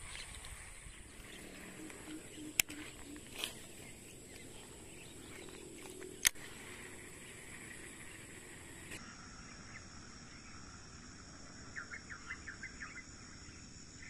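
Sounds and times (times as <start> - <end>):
faint low animal calls: 0.0 - 14.0
insects droning: 0.0 - 14.0
sharp clicks: 1.8 - 3.6, 5.5 - 6.4.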